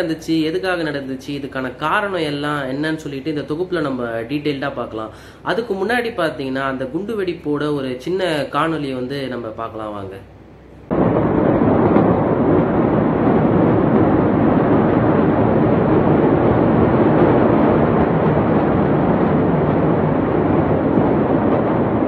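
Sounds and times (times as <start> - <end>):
loud rushing noise: 10.9 - 22.0.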